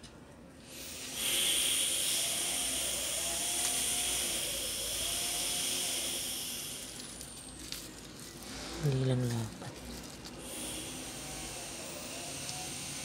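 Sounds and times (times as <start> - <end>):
rushing hiss of blowing air: 0.7 - 7.4, 10.4 - 13.0.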